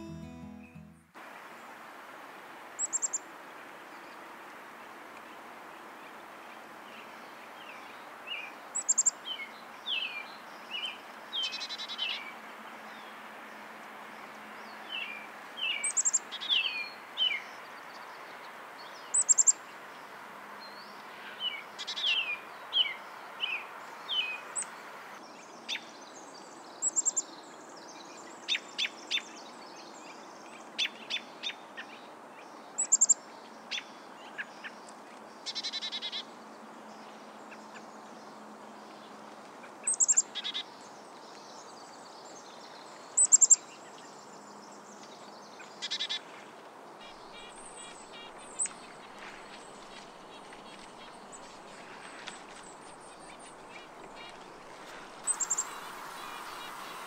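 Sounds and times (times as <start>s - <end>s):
small birds chipping and trilling: 47.2s - 57.0s
background hiss: 55.2s - 57.0s.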